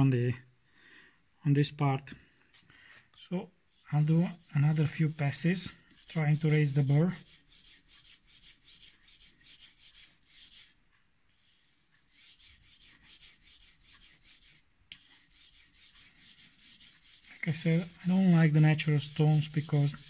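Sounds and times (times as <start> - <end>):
knife scraping on whetstone: 15.3 - 20.0.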